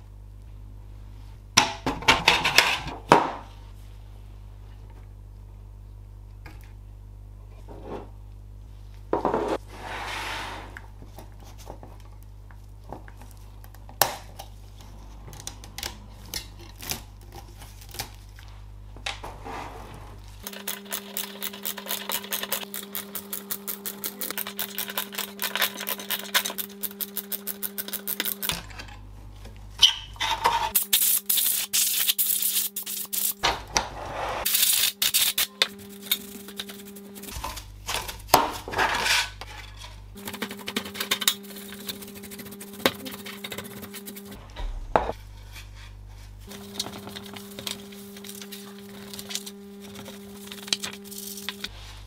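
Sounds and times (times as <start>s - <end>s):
scratchy brushing: 40.2s - 44.4s
brush strokes on circuit board: 40.4s - 44.4s.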